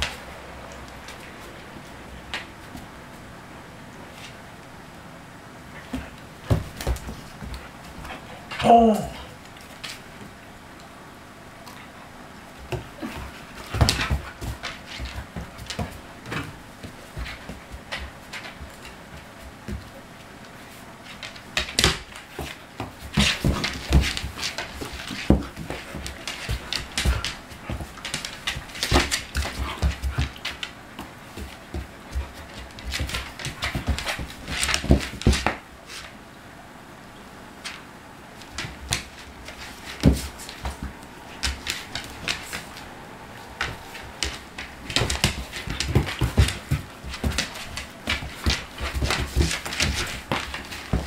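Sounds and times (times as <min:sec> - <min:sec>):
dog bodies bumping: 0:00.0 - 0:03.2, 0:05.8 - 0:10.4, 0:12.5 - 0:36.1, 0:38.4 - 0:51.0
paws thumping on wooden floor: 0:05.8 - 0:10.4, 0:12.5 - 0:35.7, 0:38.4 - 0:51.0.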